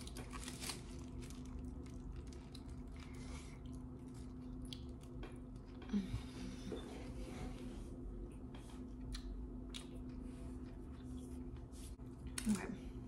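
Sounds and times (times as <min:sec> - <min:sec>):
person chewing food: 0:00.0 - 0:05.8.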